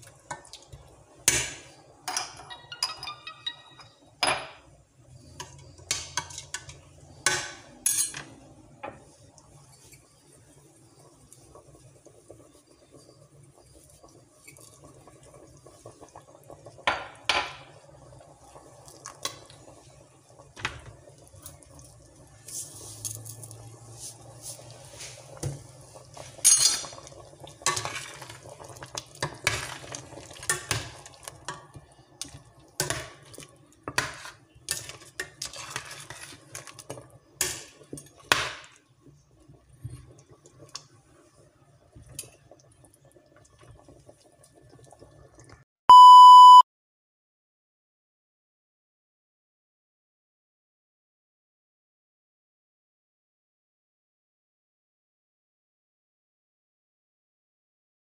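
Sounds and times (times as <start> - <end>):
spoon clinking and scraping pot: 1.2 - 4.6, 5.2 - 9.0, 26.2 - 28.4, 29.2 - 38.5.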